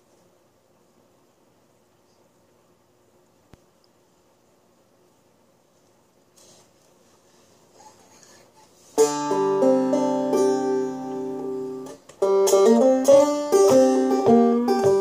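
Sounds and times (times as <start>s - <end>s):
banjo chord ringing: 9.0s - 15.0s
banjo plucked notes: 9.0s - 15.0s.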